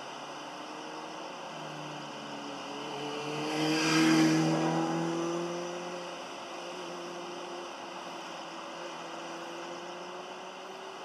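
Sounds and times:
vehicle engine accelerating past: 2.8 - 6.2.

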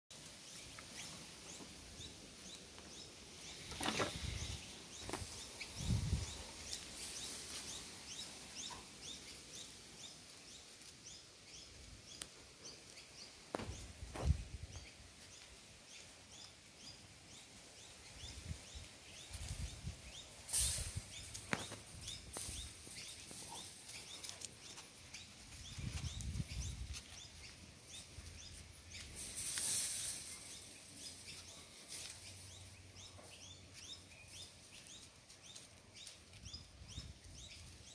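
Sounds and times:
birds chirping: 0.1 - 37.9
rustles and soft bumps: 2.8 - 7.8, 13.5 - 15.4.

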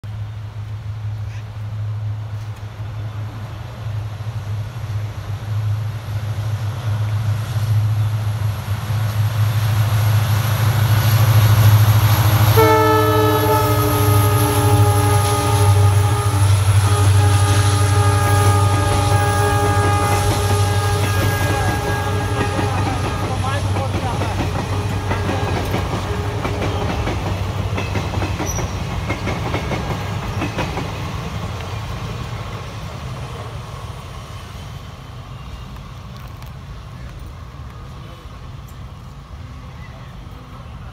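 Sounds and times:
diesel locomotive engine roaring: 0.0 - 40.9
train coaches rolling by: 0.0 - 40.9
steady multi-tone horn: 12.5 - 23.8.

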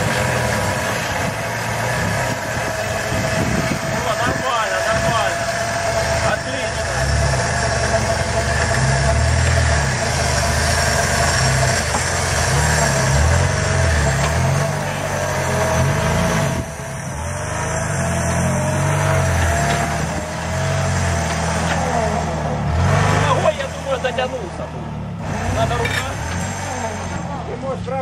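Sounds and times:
off-road engine revving: 0.0 - 28.0.

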